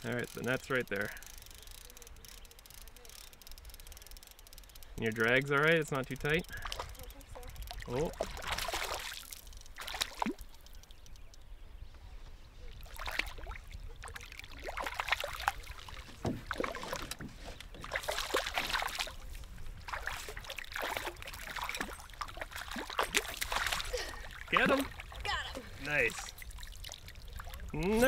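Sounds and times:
fish splashing at water surface: 0:06.5 - 0:11.2, 0:12.8 - 0:17.2, 0:17.8 - 0:25.2.

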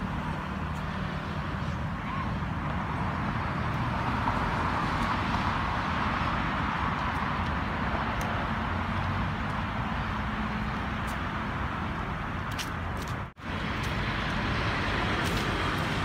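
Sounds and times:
road traffic rumble and hiss: 0:00.0 - 0:16.0.

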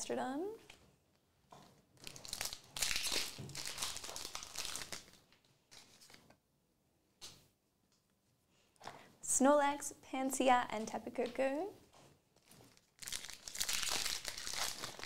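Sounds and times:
foil wrapper crinkling: 0:02.0 - 0:06.2, 0:12.4 - 0:15.0.

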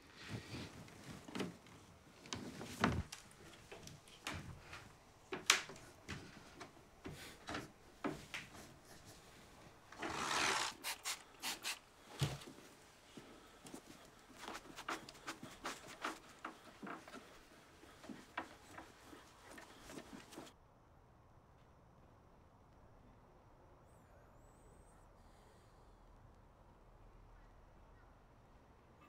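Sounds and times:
cloth wiping wooden surface: 0:10.0 - 0:12.6, 0:14.4 - 0:20.5
light handling knocks: 0:13.6 - 0:20.5.

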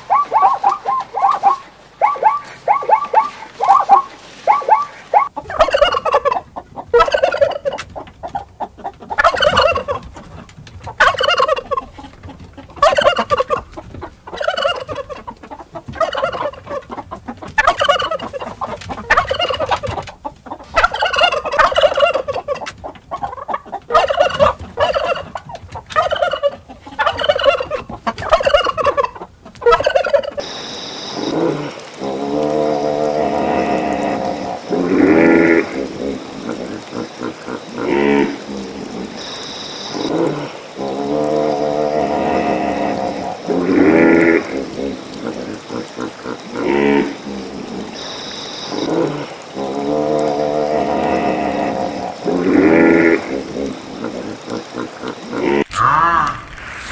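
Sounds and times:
turkey gobbling: 0:00.0 - 0:40.4.

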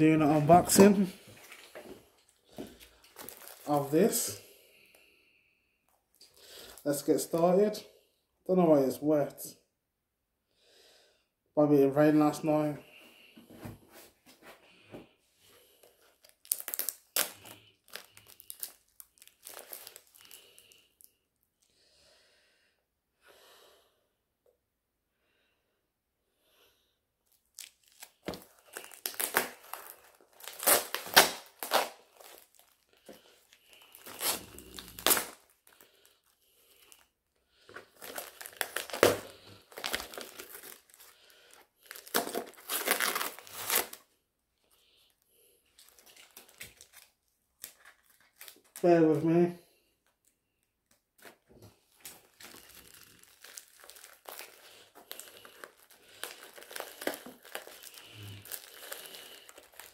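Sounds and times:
plastic bag tearing and crinkling: 0:03.0 - 0:04.4, 0:16.2 - 0:20.8, 0:27.4 - 0:37.0, 0:37.9 - 0:44.0, 0:45.8 - 0:48.8, 0:51.9 - 0:59.9.

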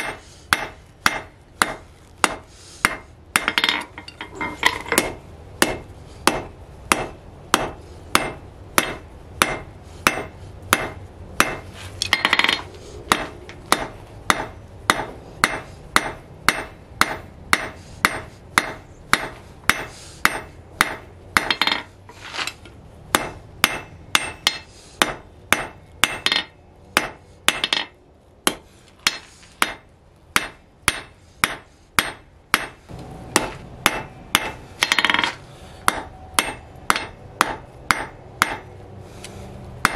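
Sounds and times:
hammer striking metal on anvil: 0:00.0 - 0:21.9, 0:23.1 - 0:38.7.

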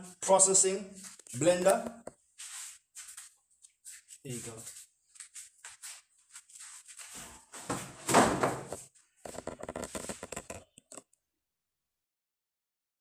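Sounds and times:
plastic parts and wrapping rustling: 0:04.0 - 0:11.0.

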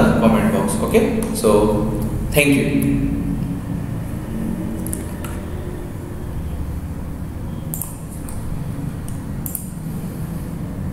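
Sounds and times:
low room hum: 0:00.0 - 0:10.9.

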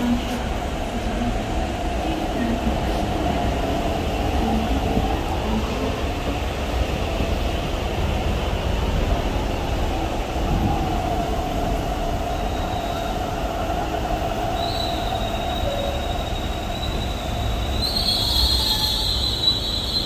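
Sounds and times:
rumbling train wheels: 0:00.0 - 0:20.0
thin high squeal: 0:14.7 - 0:20.0.

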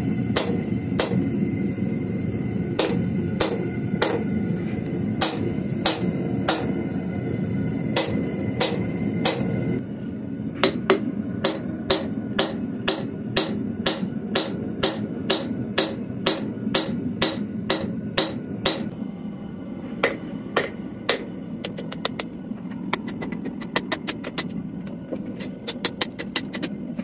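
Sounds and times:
hammer striking hot steel on anvil: 0:00.3 - 0:01.5, 0:02.7 - 0:04.4, 0:05.2 - 0:07.0, 0:07.8 - 0:09.7, 0:10.6 - 0:18.9, 0:20.0 - 0:22.2.

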